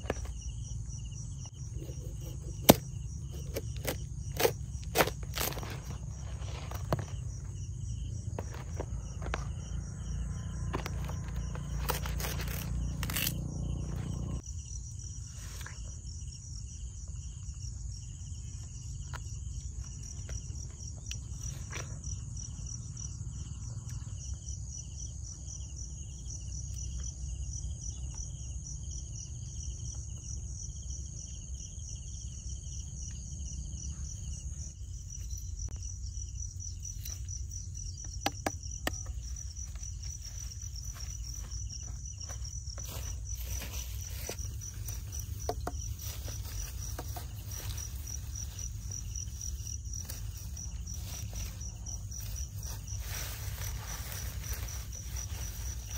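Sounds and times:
low outdoor rumble: 0:00.0 - 0:14.5
insects trilling: 0:00.0 - 0:55.9.

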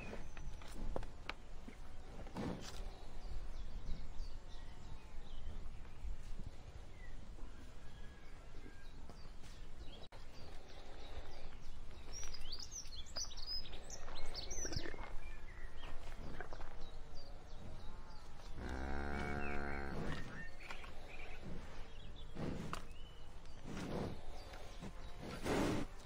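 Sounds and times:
birds chirping: 0:00.0 - 0:26.0
cattle rustling and chewing: 0:00.0 - 0:26.0
cow mooing: 0:18.6 - 0:20.3.

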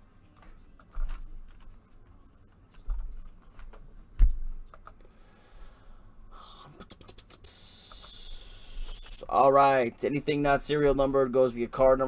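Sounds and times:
keyboard keystrokes: 0:02.9 - 0:05.0.

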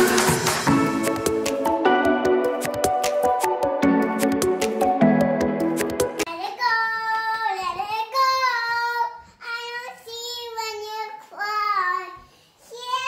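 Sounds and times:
music with plucked notes: 0:00.0 - 0:06.2
girl singing: 0:06.3 - 0:13.0.

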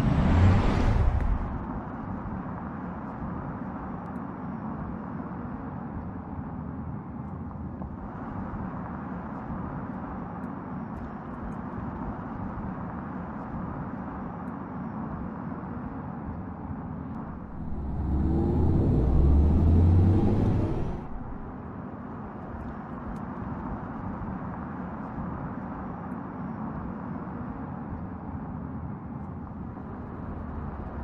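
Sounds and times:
car passing: 0:00.0 - 0:01.7, 0:17.2 - 0:21.6
tyre and road noise: 0:00.0 - 0:01.9, 0:17.2 - 0:21.6.

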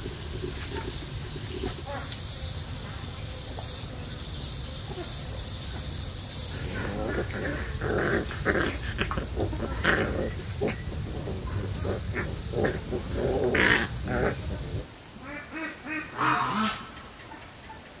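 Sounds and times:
soft animal calls: 0:06.3 - 0:14.8.

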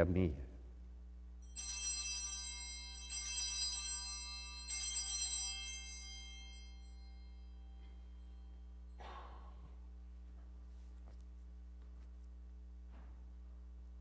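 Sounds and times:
altar bells ringing: 0:01.4 - 0:09.0.

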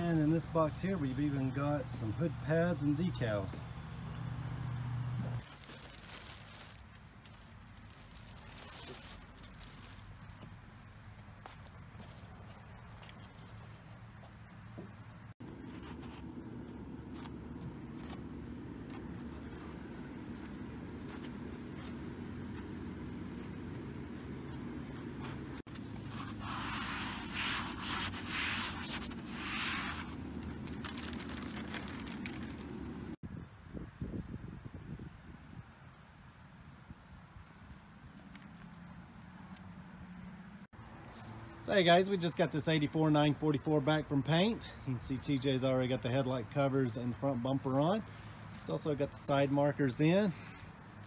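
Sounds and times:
plastic bag crinkling: 0:05.4 - 0:10.4, 0:28.7 - 0:32.9
steady low hum: 0:10.6 - 0:33.2
hand rubbing foam pad: 0:25.1 - 0:30.5.

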